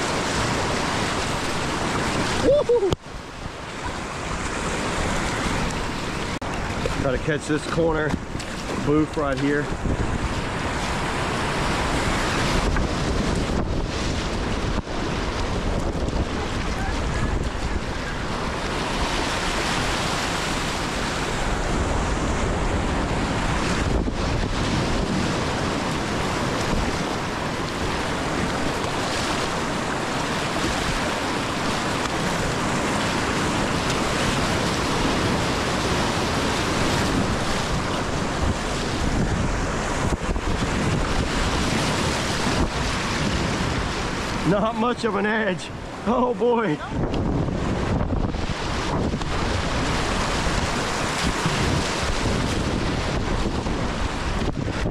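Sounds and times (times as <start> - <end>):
whitewater rushing: 0.0 - 54.9
wind on microphone: 0.0 - 54.9.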